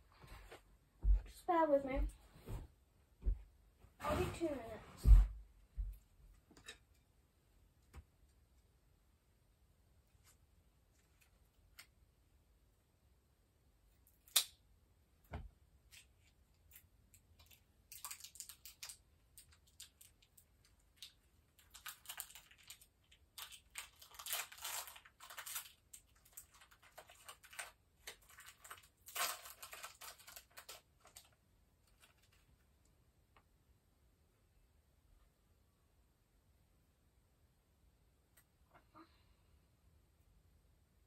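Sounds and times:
packaging rustling: 0:21.0 - 0:32.5.

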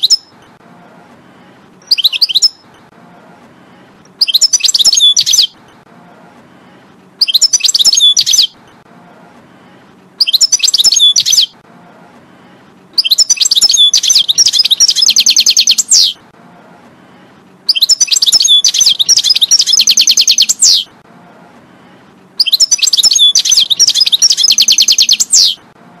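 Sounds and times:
faint low hum: 0:00.0 - 0:26.0
goldfinch twittering song: 0:01.9 - 0:02.6, 0:04.2 - 0:05.6, 0:07.2 - 0:08.6, 0:10.2 - 0:11.5, 0:13.0 - 0:16.2, 0:17.7 - 0:20.9, 0:22.4 - 0:25.6.

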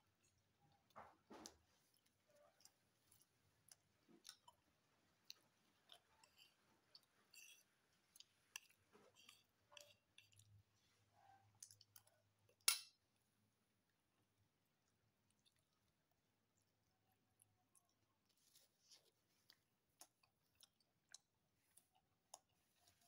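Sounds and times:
person chewing: 0:01.9 - 0:10.7, 0:15.3 - 0:15.9, 0:17.4 - 0:23.0.

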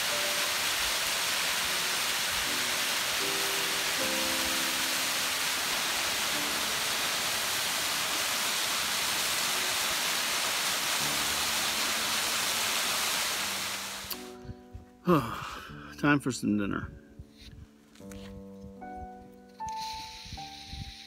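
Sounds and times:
waterfall splashing on rocks: 0:00.0 - 0:14.2.

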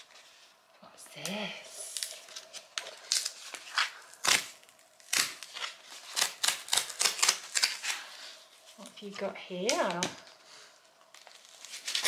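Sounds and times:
cardboard tear strip ripping: 0:02.0 - 0:08.2, 0:11.2 - 0:12.0.

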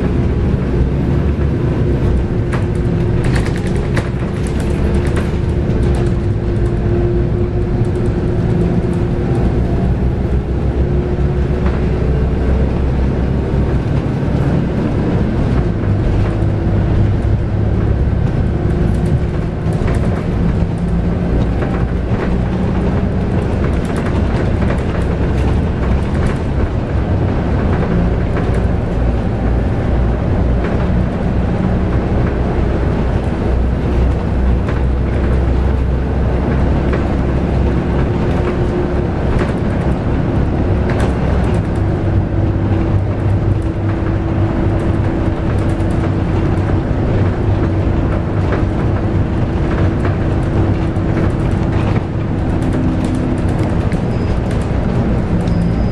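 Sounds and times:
interior rattles: 0:00.0 - 0:12.0
bus diesel engine driving: 0:00.0 - 0:55.9.

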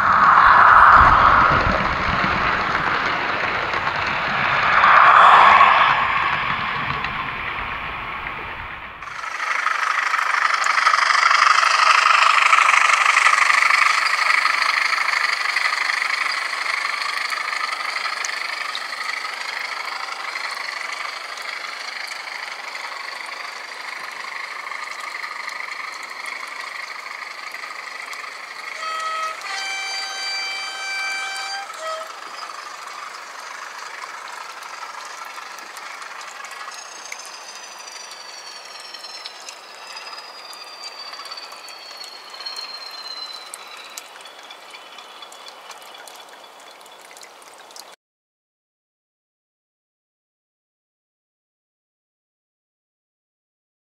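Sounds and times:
model train wheels on rail: 0:09.1 - 0:44.7
two-tone train horn: 0:28.7 - 0:32.9.

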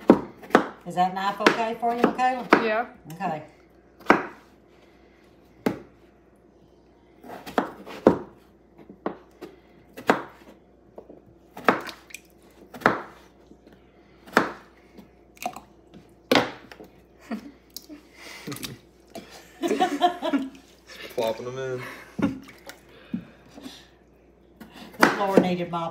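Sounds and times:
knife chopping on wooden board: 0:00.0 - 0:02.8, 0:04.0 - 0:04.5, 0:05.6 - 0:05.9, 0:07.2 - 0:12.0, 0:12.6 - 0:13.3, 0:14.2 - 0:15.1, 0:16.3 - 0:16.8, 0:24.9 - 0:25.6.

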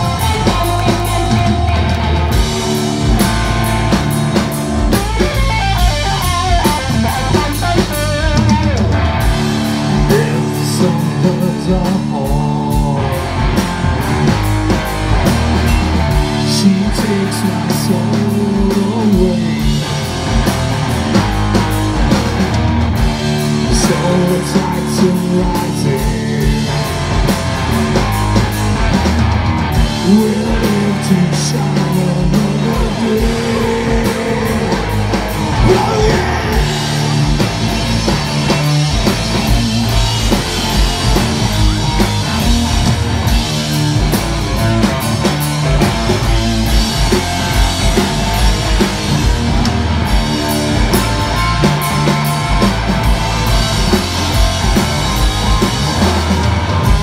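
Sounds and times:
bass guitar: 0:00.0 - 0:57.0
distorted electric guitar: 0:00.0 - 0:57.0
drum kit: 0:00.0 - 0:57.0
person singing: 0:09.9 - 0:13.3, 0:30.0 - 0:37.1.

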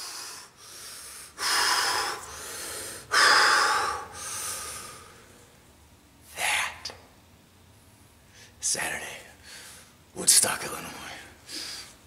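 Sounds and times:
man breathing heavily: 0:00.0 - 0:05.4, 0:11.2 - 0:12.0.

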